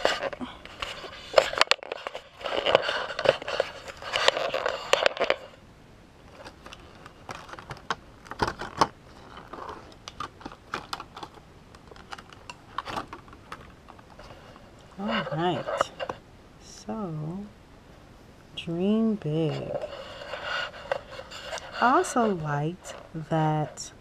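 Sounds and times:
plastic packaging crinkling: 0:00.0 - 0:05.6, 0:06.3 - 0:16.2, 0:19.5 - 0:23.2.

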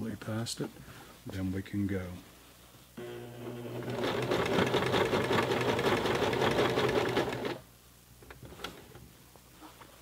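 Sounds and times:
sewing machine stitching: 0:03.0 - 0:07.6.

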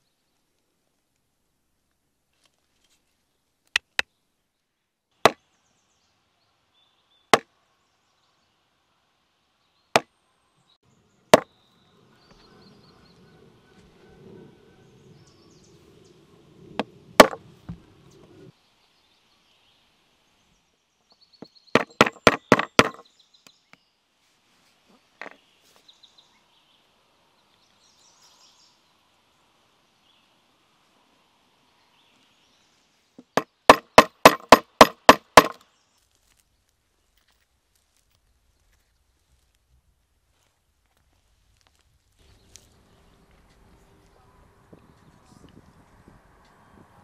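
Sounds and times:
mallet striking pricking iron: 0:33.4 - 0:35.6.

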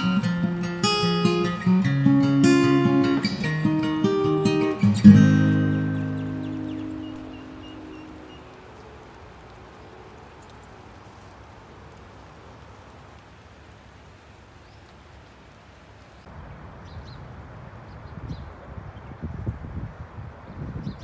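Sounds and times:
rain on pavement and leaves: 0:00.0 - 0:20.8
wind gusts on microphone: 0:16.3 - 0:21.0.

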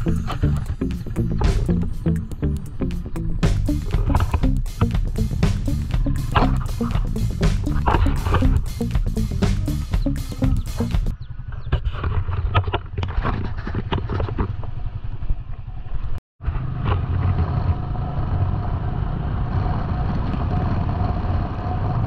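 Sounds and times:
motorcycle engine running: 0:00.0 - 0:11.1
road rumble on pavement: 0:16.4 - 0:22.0.

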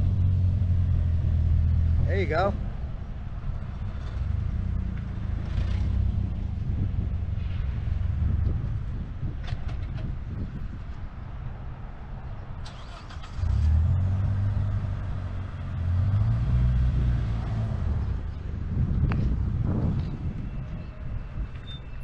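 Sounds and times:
car engine revving: 0:12.7 - 0:18.2.

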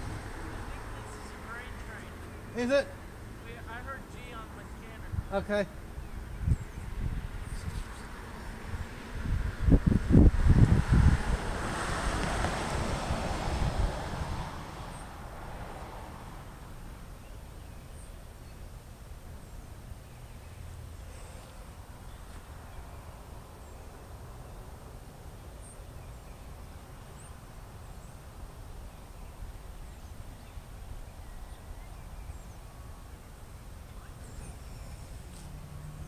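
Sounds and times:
wind rumble on microphone: 0:05.0 - 0:17.7
faint bird chirps: 0:28.8 - 0:36.0.

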